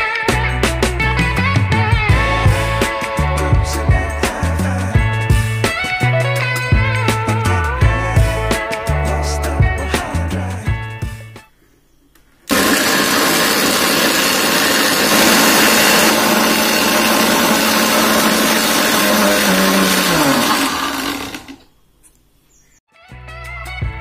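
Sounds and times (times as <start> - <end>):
mixer grinder motor: 1.4 - 4.4, 12.5 - 21.8.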